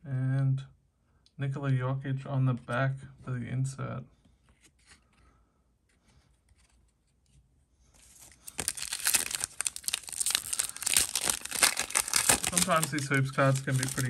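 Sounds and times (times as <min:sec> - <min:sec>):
plastic wrapper tearing and crinkling: 0:08.0 - 0:14.0.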